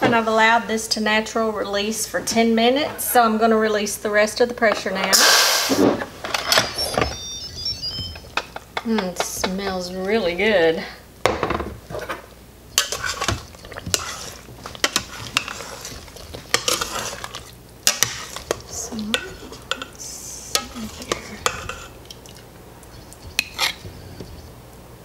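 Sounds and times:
metal spoon scraping and clinking pot: 12.8 - 22.0, 23.4 - 23.8.

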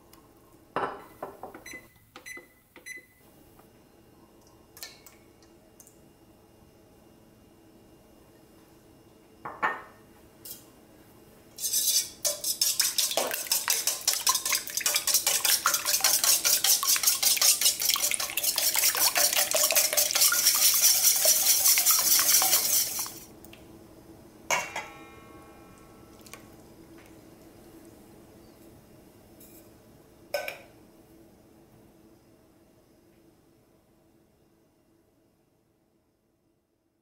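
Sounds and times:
eggs beaten in metal bowl: 11.6 - 23.2.

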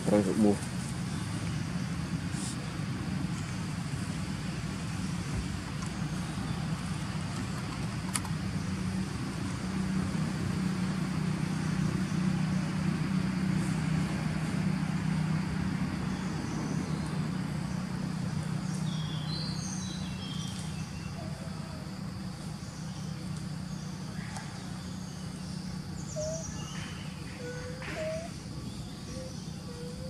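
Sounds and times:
vehicle engine hum: 0.0 - 30.0
bird chirps: 22.6 - 30.0.

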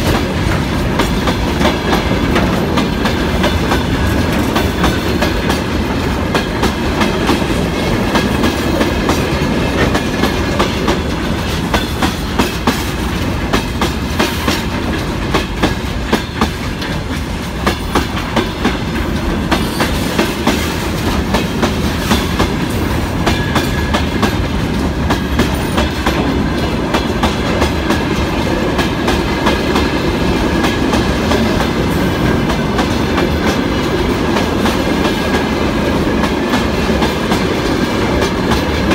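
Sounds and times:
train wheels clattering on rails: 0.0 - 38.9.

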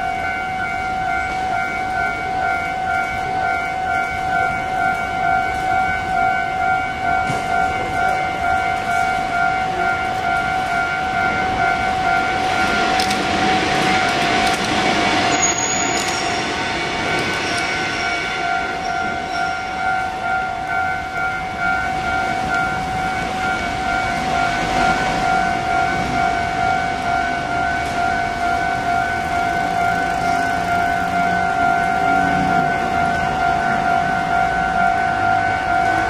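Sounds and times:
level crossing bell ringing: 0.0 - 36.0
train rushing noise: 0.0 - 36.0.

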